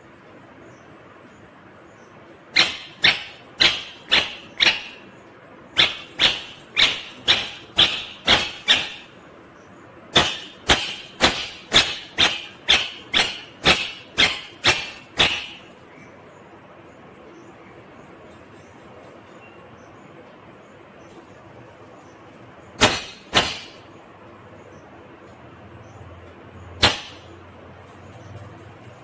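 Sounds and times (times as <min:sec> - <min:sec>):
parakeet screeching: 0:02.6 - 0:05.1, 0:05.8 - 0:09.2.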